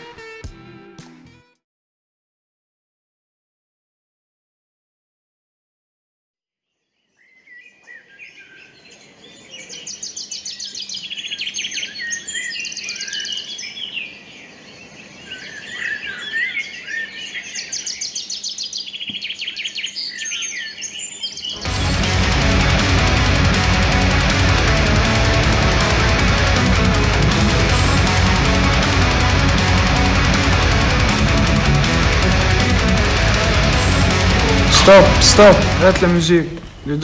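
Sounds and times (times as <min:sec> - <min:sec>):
birds chirping and trilling: 0:07.2 - 0:21.6
electric guitar rock music: 0:21.6 - 0:37.0.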